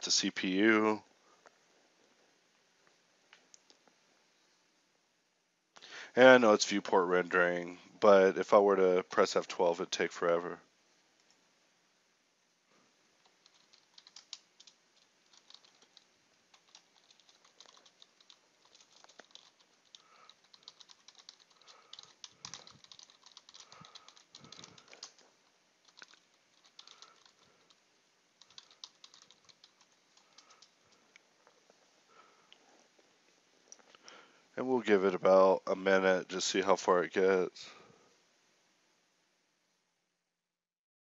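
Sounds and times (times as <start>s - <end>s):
typing on a computer keyboard: 13.2s - 25.2s, 25.8s - 27.8s, 28.4s - 30.8s.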